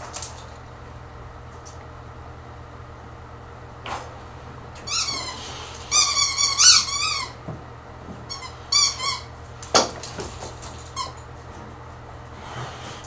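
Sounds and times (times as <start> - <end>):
squeaky dog toy squealing: 4.9 - 7.4.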